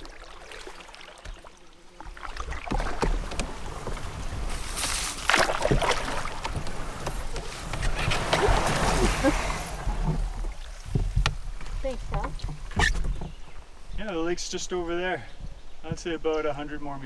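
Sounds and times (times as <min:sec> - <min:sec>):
paddle strokes splashing in water: 0:00.0 - 0:13.3.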